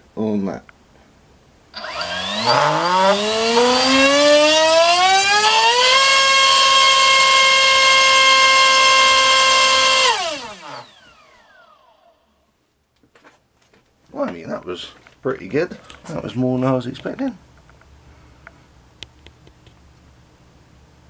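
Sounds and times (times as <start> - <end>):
electric motor whine: 1.8 - 12.2.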